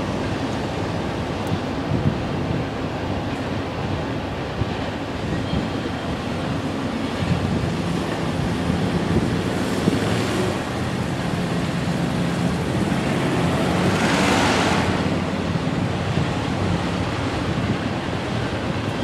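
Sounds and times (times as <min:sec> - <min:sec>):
freight train rolling by: 0:00.0 - 0:19.0
wind on microphone: 0:00.0 - 0:19.0
road vehicle passing: 0:06.8 - 0:18.2.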